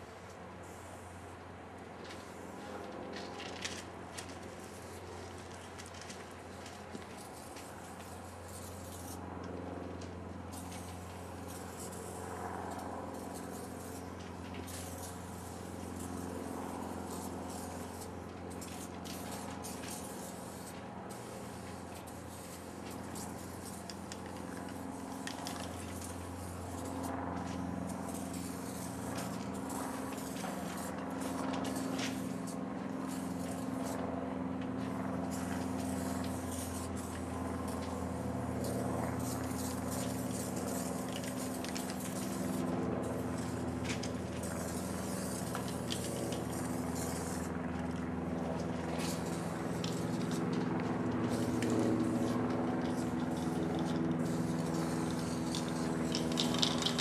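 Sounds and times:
spray paint can hissing: 0:07.1 - 0:09.2, 0:10.5 - 0:34.0, 0:35.2 - 0:47.5, 0:48.9 - 0:50.6, 0:51.2 - 0:57.0.

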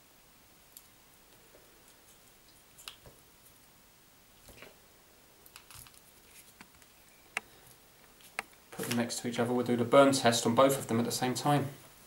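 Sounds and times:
fingers handling thin cable: 0:05.4 - 0:09.0.

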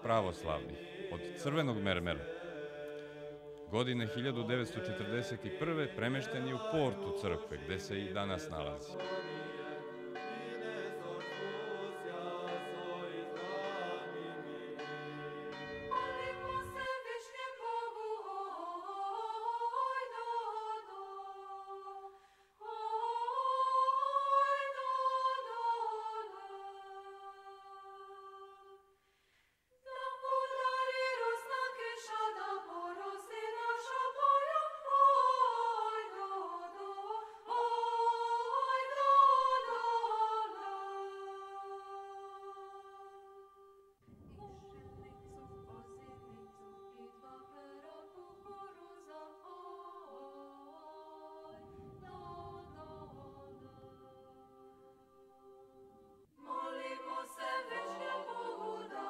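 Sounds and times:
women's choir singing a cappella: 0:00.0 - 0:29.0, 0:29.8 - 0:59.0
church bells ringing: 0:08.5 - 0:17.2.

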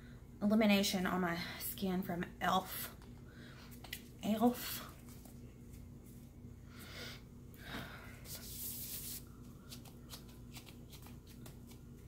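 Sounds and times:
gloved hands rubbing skin: 0:08.3 - 0:12.0.

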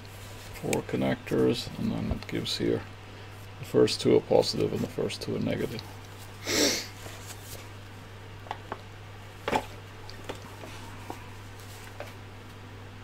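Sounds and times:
steady low hum: 0:00.0 - 0:13.0
paper booklet swishing: 0:07.0 - 0:07.7.

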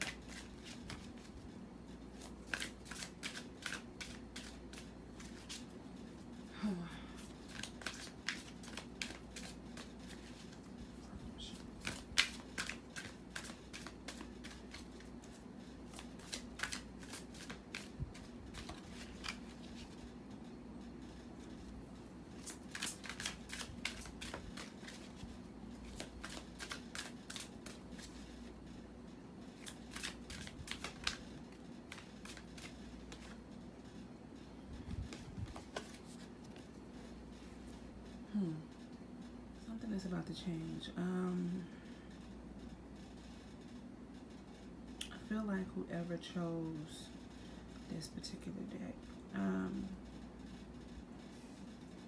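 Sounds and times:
cards being shuffled: 0:00.0 - 0:01.3, 0:02.1 - 0:05.8, 0:07.2 - 0:20.0, 0:22.3 - 0:28.5, 0:29.5 - 0:33.4, 0:34.8 - 0:36.7.

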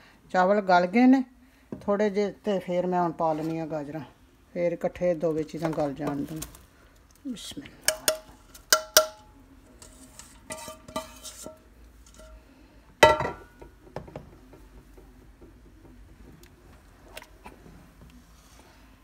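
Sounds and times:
wooden spoon scraping bowl: 0:09.7 - 0:12.3.

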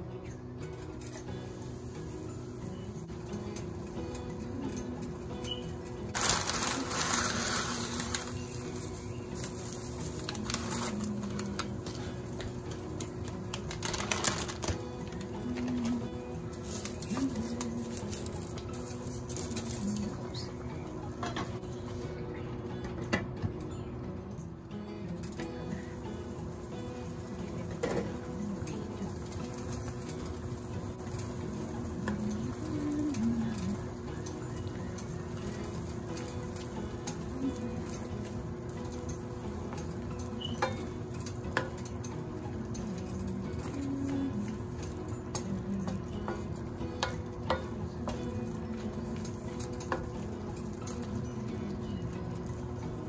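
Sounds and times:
noodles hissing in broth: 0:06.2 - 0:11.4
noodles clicking and rustling: 0:09.4 - 0:16.0.

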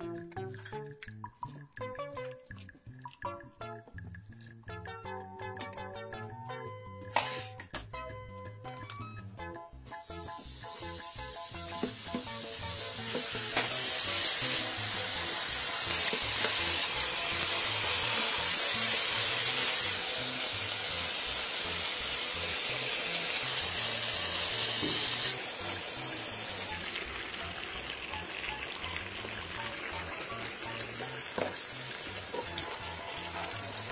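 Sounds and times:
background music: 0:00.0 - 0:33.9
food sizzling on a griddle: 0:09.9 - 0:33.9.

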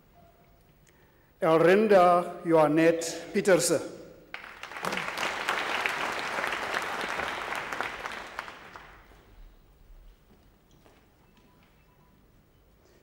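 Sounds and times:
audience applause: 0:04.3 - 0:09.2.

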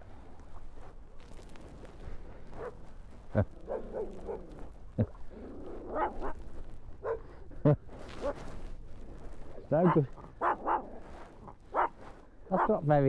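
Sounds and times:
small dog barking and yapping: 0:03.7 - 0:04.5, 0:05.9 - 0:06.4, 0:07.0 - 0:07.3, 0:09.8 - 0:11.1, 0:11.7 - 0:12.8.

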